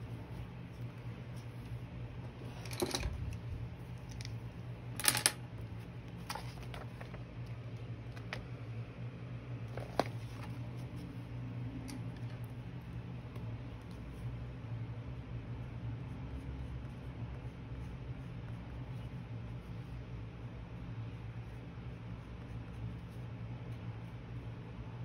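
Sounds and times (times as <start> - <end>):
steady low hum: 0.0 - 25.0
pencils clicking and tapping: 2.4 - 4.4, 5.0 - 5.4, 6.1 - 7.2.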